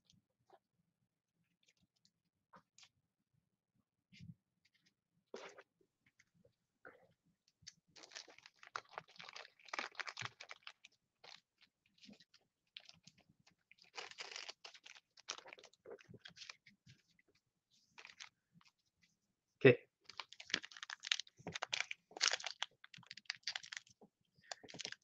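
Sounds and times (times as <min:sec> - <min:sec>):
foil card wrapper crinkling: 0:08.0 - 0:11.4, 0:13.8 - 0:16.6, 0:20.1 - 0:23.9, 0:24.6 - 0:25.0.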